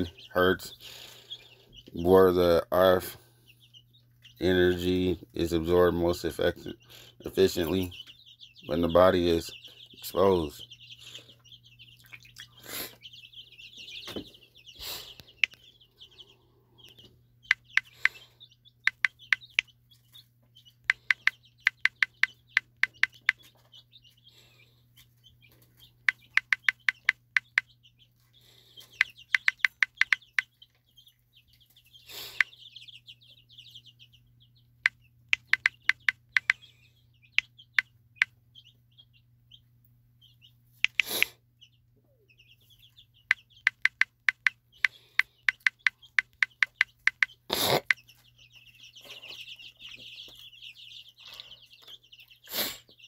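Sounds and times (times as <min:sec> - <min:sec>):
touchscreen keyboard tapping: 0:18.9 - 0:19.6, 0:20.9 - 0:23.4, 0:26.1 - 0:27.6, 0:29.3 - 0:30.4, 0:35.3 - 0:36.6, 0:43.6 - 0:44.5, 0:45.4 - 0:47.3.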